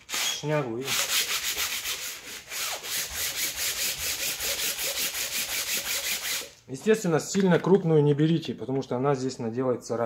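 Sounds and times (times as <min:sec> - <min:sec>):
sandpaper rubbing on metal: 0:00.0 - 0:06.6.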